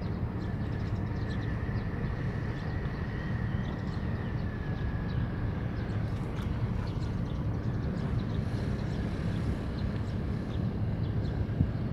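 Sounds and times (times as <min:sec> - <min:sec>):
motor boat engine rumble: 0:00.0 - 0:11.9
wind on water: 0:00.0 - 0:11.9.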